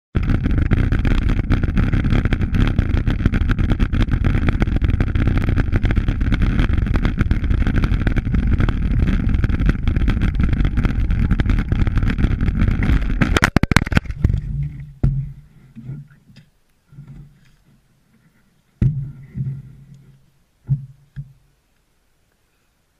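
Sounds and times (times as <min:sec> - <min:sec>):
bicycle rattling on dirt trail: 0:00.2 - 0:15.6
wind buffeting microphone: 0:00.5 - 0:15.4.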